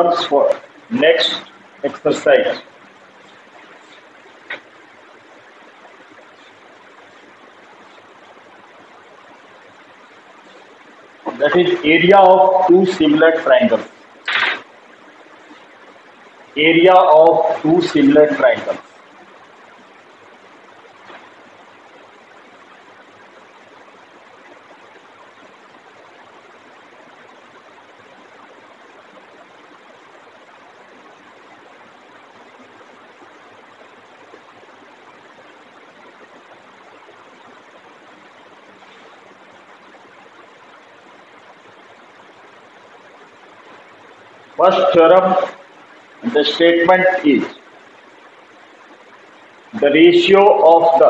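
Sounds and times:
background hiss: 0.0s - 51.0s.

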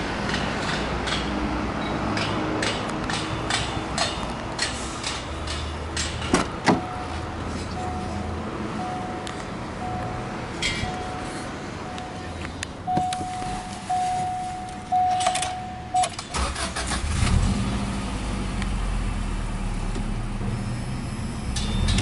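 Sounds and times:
car engine cranking and idling: 11.9s - 22.0s.

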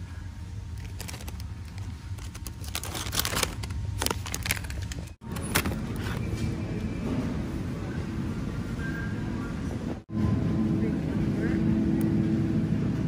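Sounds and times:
low hum: 0.0s - 13.0s
plastic packaging crinkling: 0.7s - 6.2s.

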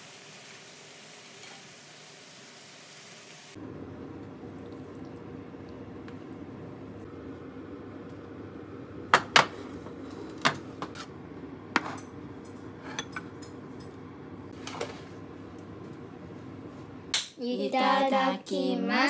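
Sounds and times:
ceramic dishes clinking: 12.8s - 13.9s.

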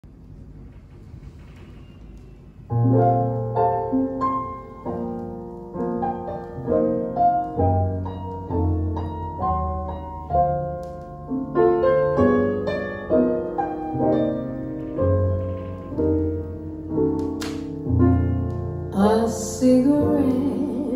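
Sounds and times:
record hiss: 0.0s - 20.9s
piano chords over bass: 1.8s - 20.9s.

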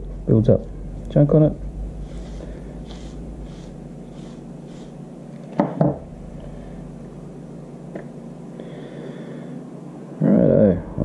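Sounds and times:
soldering tip rubbing on pad: 2.0s - 5.0s.

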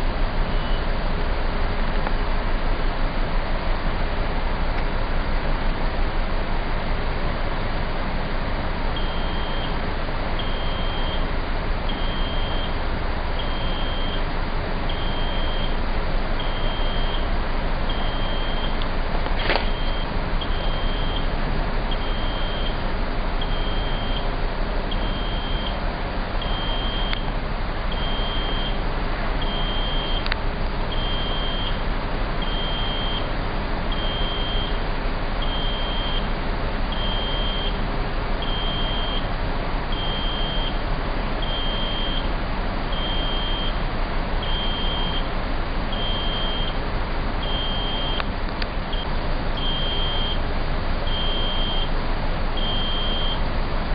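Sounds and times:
machinery hum: 0.0s - 53.9s
wind: 0.0s - 53.9s
crane warning beeper: 0.5s - 0.9s, 9.0s - 9.8s, 10.4s - 11.3s, 11.9s - 12.8s, 13.4s - 14.3s, 14.9s - 15.8s, 16.4s - 18.8s, 19.6s - 21.3s, 21.9s - 22.8s, 23.4s - 24.3s, 24.9s - 25.8s, 26.4s - 27.3s, 27.9s - 28.8s, 29.4s - 30.3s, 30.9s - 31.8s, 32.4s - 33.3s, 33.9s - 34.8s, 35.4s - 36.3s, 36.9s - 37.8s, 38.4s - 39.3s, 39.9s - 40.8s, 41.4s - 42.3s, 42.9s - 43.8s, 44.4s - 45.3s, 45.9s - 46.8s, 47.4s - 48.2s, 48.9s - 50.4s, 51.0s - 52.0s, 52.6s - 53.4s.

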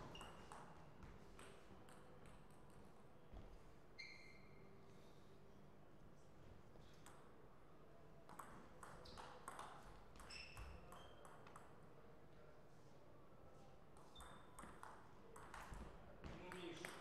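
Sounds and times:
short high squeaks: 4.0s - 4.6s.

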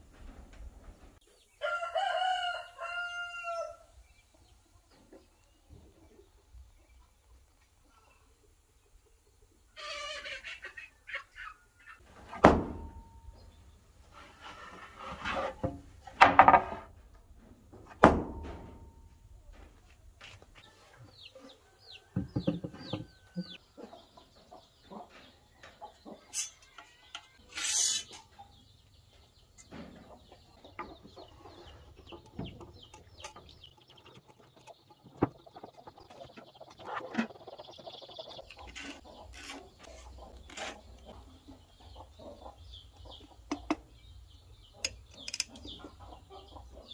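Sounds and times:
chickens clucking: 4.0s - 16.2s, 16.9s - 46.9s
wood and tools knocking: 14.5s - 17.0s, 22.1s - 23.6s, 29.6s - 37.4s, 43.5s - 43.8s.

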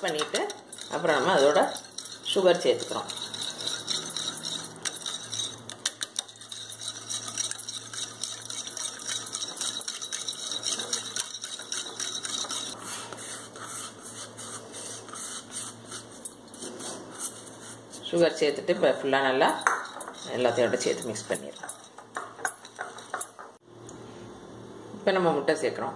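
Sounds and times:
whisk clicking against glass bowl: 0.0s - 12.8s, 19.6s - 23.5s.

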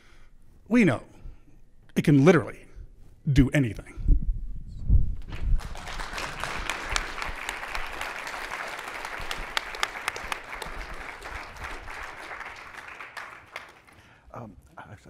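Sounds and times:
audience applauding: 5.3s - 14.2s.

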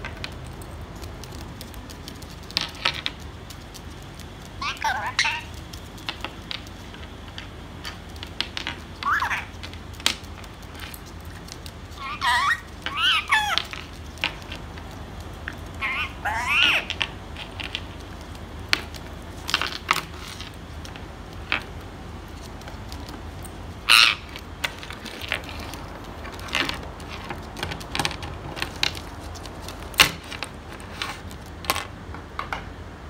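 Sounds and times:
beaks and claws tapping: 0.0s - 32.6s
parakeets squawking: 4.6s - 5.6s, 8.7s - 10.9s, 11.9s - 14.6s, 15.5s - 17.9s, 23.8s - 26.6s.

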